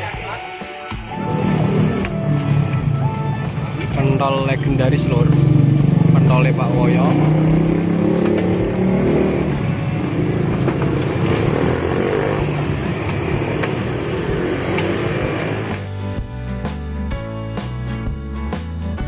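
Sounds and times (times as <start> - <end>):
vehicle engine humming: 1.1 - 16.0.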